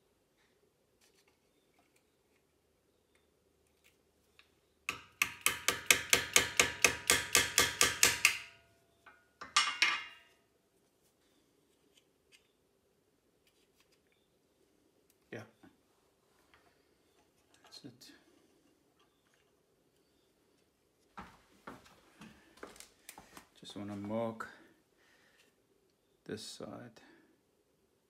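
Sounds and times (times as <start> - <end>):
hammer tapping on screwdriver: 4.9 - 8.6.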